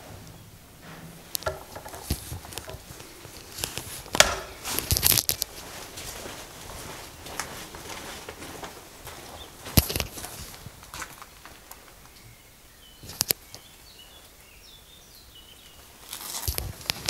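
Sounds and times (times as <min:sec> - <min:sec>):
footsteps crunching on gritty concrete: 0:01.4 - 0:12.1, 0:16.0 - 0:17.0.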